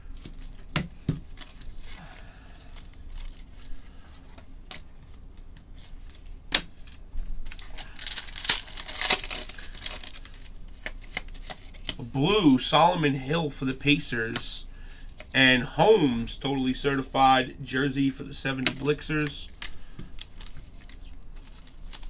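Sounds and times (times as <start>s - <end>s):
wrapper tearing and crinkling: 6.9s - 11.6s, 20.1s - 22.0s.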